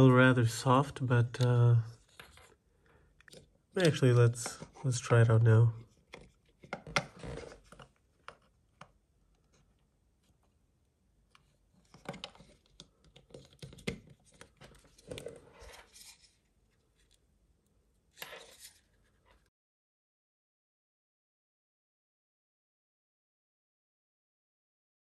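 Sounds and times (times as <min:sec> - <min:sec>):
hands clicking and tapping plastic: 0:11.9 - 0:14.8.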